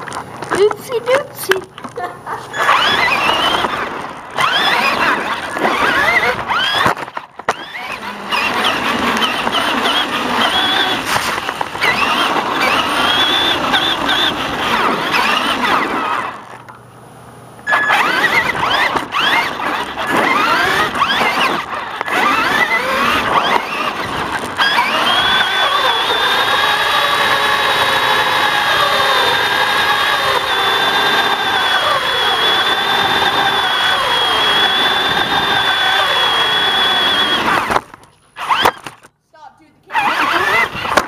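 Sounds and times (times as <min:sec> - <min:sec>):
electric motor whining: 0:00.0 - 0:16.7, 0:17.6 - 0:39.1, 0:39.9 - 0:41.0
chassis rattling on concrete: 0:00.0 - 0:16.8, 0:17.6 - 0:29.4.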